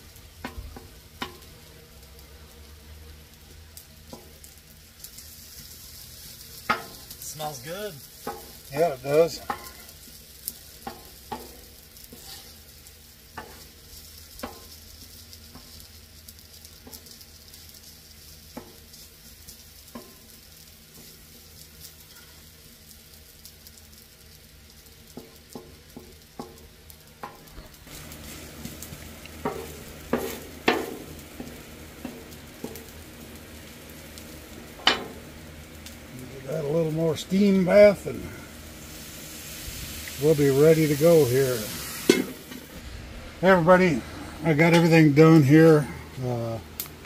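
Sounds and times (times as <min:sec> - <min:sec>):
food sizzling on griddle: 0:00.0 - 0:47.0
metal spatula scraping steel: 0:12.1 - 0:12.6.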